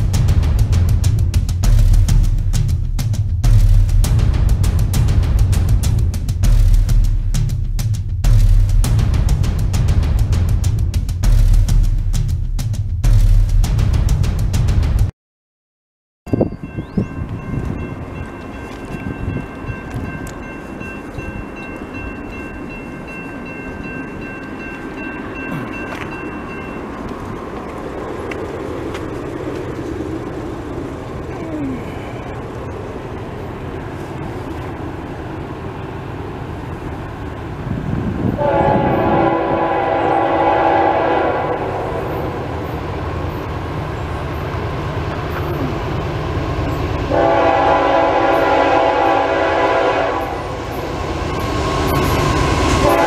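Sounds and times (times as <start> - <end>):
train rumble: 0.0 - 15.1, 16.3 - 53.0
crossing warning bell ringing: 16.3 - 27.7
locomotive horn blasts: 38.4 - 42.2, 47.1 - 50.8, 52.8 - 53.0.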